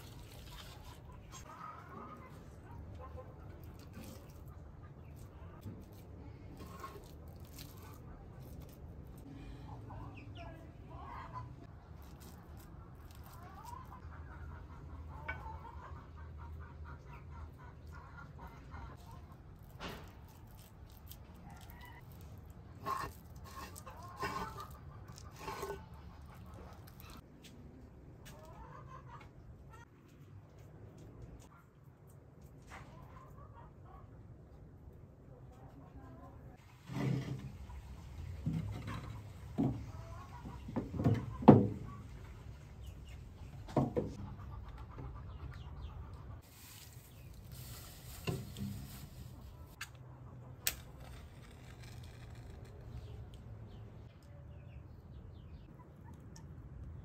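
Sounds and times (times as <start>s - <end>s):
chickens clucking: 0.5s - 5.6s, 12.5s - 19.4s, 22.6s - 27.2s, 28.2s - 30.2s, 32.8s - 34.2s, 37.3s - 50.6s.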